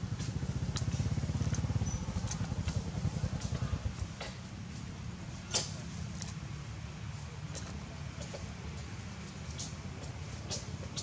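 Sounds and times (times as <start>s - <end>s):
motorcycle engine idling: 0.0s - 5.3s.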